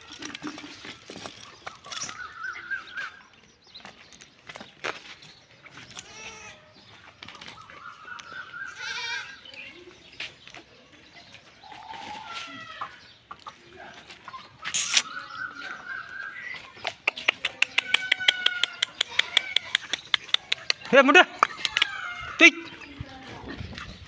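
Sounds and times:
high-pitched animal calls: 0:14.4 - 0:22.8
short clicking animal calls: 0:14.7 - 0:15.2, 0:16.9 - 0:22.0.

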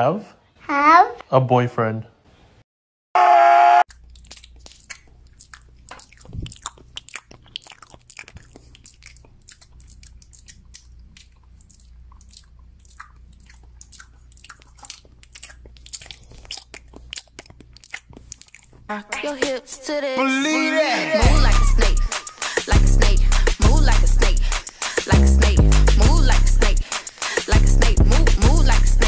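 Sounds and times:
animal chewing crunchy carrot: 0:03.9 - 0:18.9.

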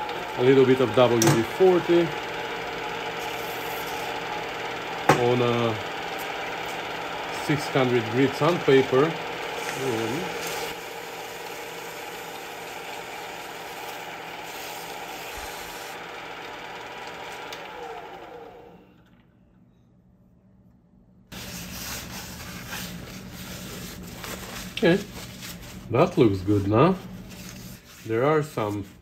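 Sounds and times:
metal lathe running: 0:00.0 - 0:18.9
sandpaper polishing metal: 0:03.2 - 0:04.2, 0:09.6 - 0:16.0, 0:21.3 - 0:25.7.

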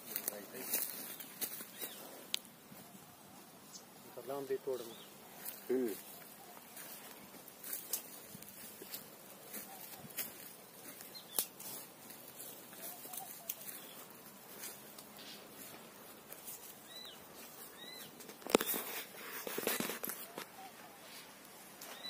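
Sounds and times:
leaves and twigs rustling: 0:00.0 - 0:22.0
faint bird chirps: 0:12.7 - 0:14.2, 0:16.8 - 0:18.9, 0:20.2 - 0:22.0.

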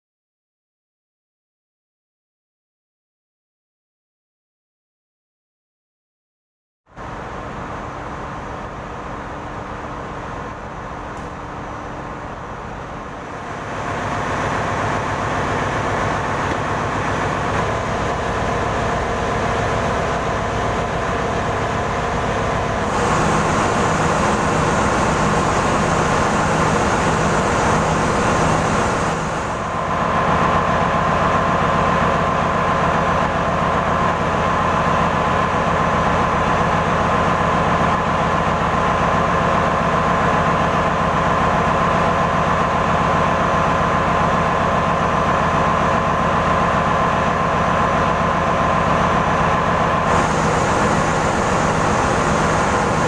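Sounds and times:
engine room machinery din: 0:06.9 - 0:53.0
high whine: 0:13.2 - 0:30.1, 0:50.0 - 0:53.0.

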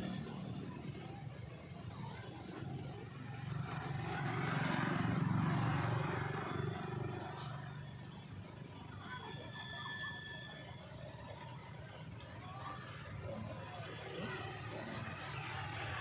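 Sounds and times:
passing motor vehicle: 0:00.0 - 0:09.0.

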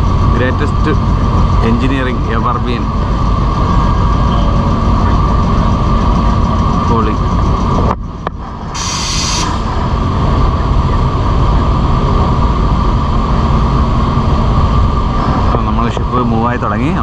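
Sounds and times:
constant whine: 0:00.0 - 0:17.0
low mechanical rumble: 0:00.0 - 0:17.0
burst of hiss: 0:08.8 - 0:09.6.

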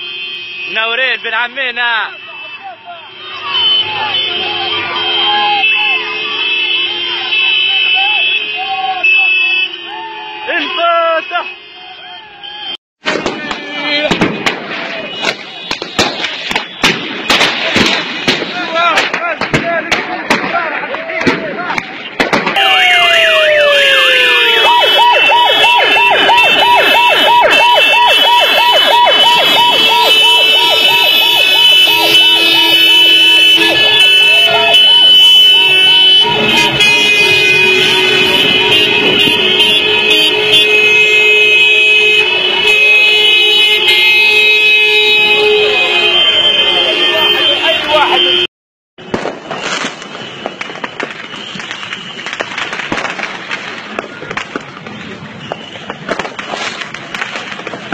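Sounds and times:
fireworks crackling and popping: 0:13.0 - 0:42.8, 0:49.0 - 0:57.9
siren yelping: 0:22.6 - 0:40.8
horn tones: 0:22.6 - 0:48.5.

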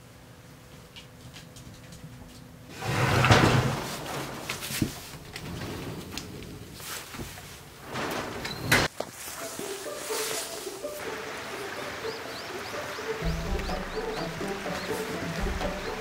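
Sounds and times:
sliding door rumbling scrape: 0:02.7 - 0:07.1, 0:07.8 - 0:08.9.

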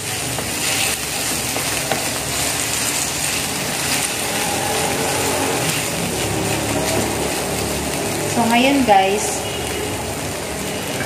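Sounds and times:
vegetables sizzling in oil: 0:00.0 - 0:11.0
wooden spatula scraping a pan: 0:00.3 - 0:07.8.

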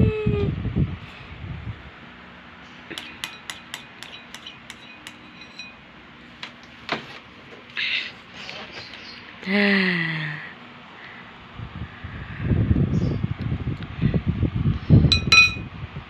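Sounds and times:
metal spoon clinking bowl: 0:02.9 - 0:05.8, 0:15.1 - 0:15.6.

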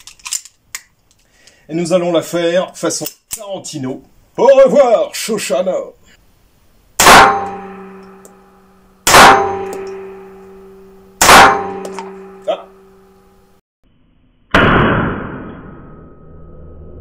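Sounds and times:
pistol shots indoors: 0:07.0 - 0:08.0, 0:09.1 - 0:12.4
metallic ringing: 0:07.0 - 0:13.6.

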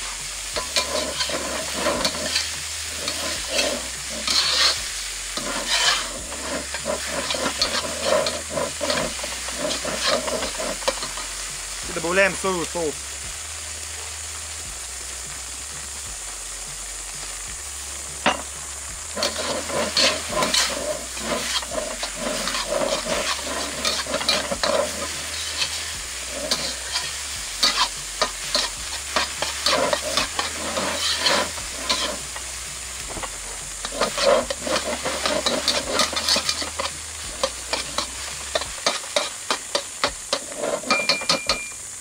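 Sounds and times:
metal spatula scraping wok: 0:00.0 - 0:12.8, 0:18.2 - 0:41.8
noodles sizzling in a wok: 0:00.0 - 0:42.0.

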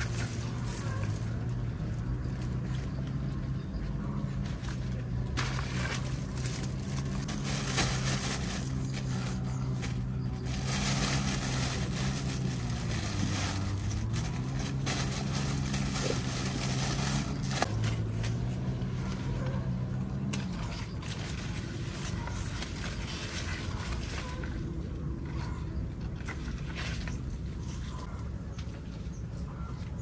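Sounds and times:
leaves rustling: 0:00.0 - 0:03.4, 0:04.3 - 0:19.4, 0:20.1 - 0:25.4
engine running: 0:00.0 - 0:30.0.

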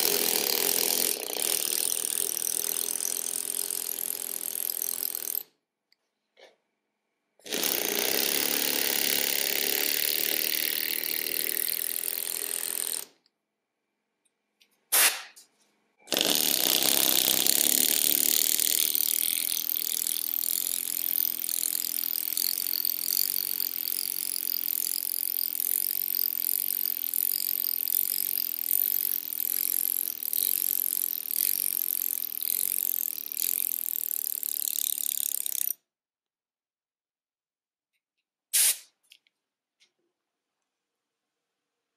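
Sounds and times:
pneumatic hammer chiselling stone: 0:00.0 - 0:05.5, 0:07.4 - 0:13.1, 0:16.0 - 0:35.8.

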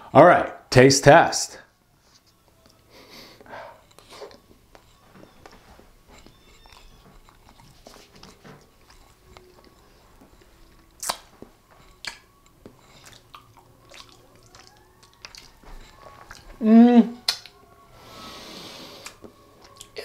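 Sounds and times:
man chewing: 0:02.6 - 0:20.0
wet mouth clicks and smacks: 0:10.7 - 0:16.5, 0:17.2 - 0:17.6, 0:19.0 - 0:20.0.

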